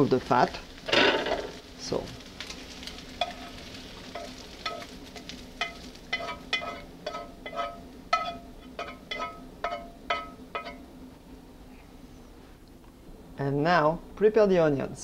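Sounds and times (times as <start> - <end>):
spatula scraping pan: 3.2 - 10.8
frying pan knocking: 5.6 - 10.8.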